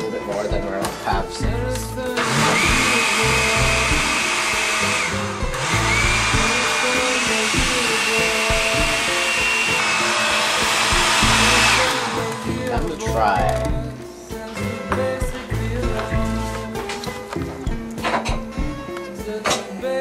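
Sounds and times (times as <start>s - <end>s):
blender motor whining: 2.1s - 13.8s.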